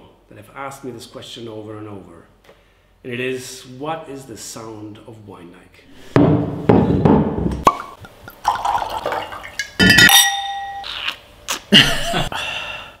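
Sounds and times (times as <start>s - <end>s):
wine splashing and glugging: 7.6s - 11.1s
wine glasses clinking: 7.7s - 10.9s.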